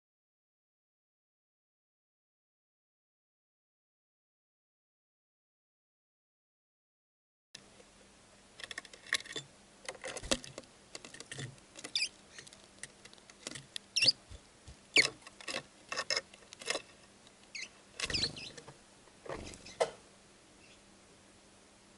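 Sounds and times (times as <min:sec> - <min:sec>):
birds pecking on wooden feeder: 0:08.6 - 0:19.9.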